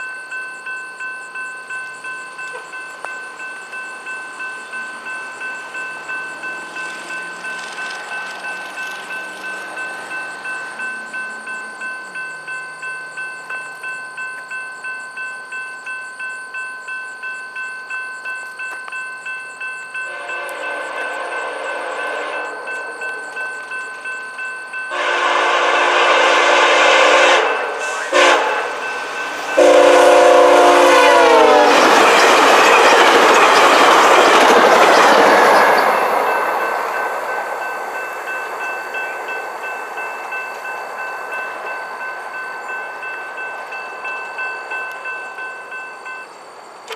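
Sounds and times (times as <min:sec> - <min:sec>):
level crossing bells ringing: 0:00.0 - 0:46.9
train passing rush: 0:00.4 - 0:46.9
locomotive horn blasts: 0:20.1 - 0:23.3, 0:24.9 - 0:29.0, 0:29.6 - 0:31.9.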